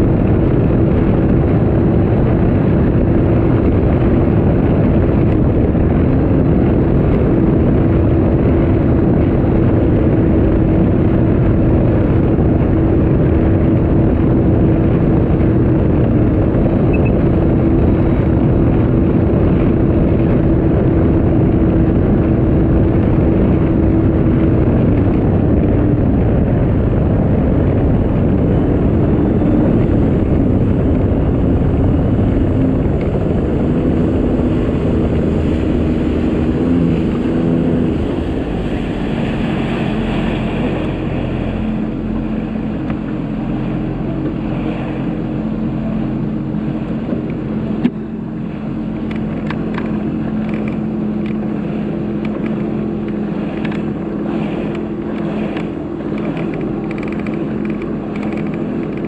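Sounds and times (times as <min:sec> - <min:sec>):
personal watercraft engine: 0:00.0 - 0:59.0
rushing water: 0:00.0 - 0:59.0.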